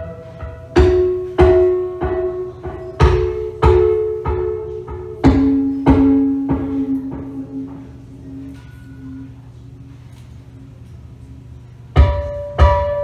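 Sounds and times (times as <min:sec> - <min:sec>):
ringing percussive hits: 0:00.2 - 0:09.5, 0:12.0 - 0:13.0.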